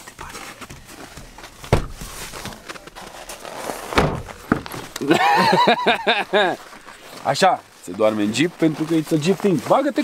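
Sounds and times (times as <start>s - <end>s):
handling rustling: 0.0s - 10.0s
dull thumps: 0.7s - 2.6s, 3.8s - 5.1s.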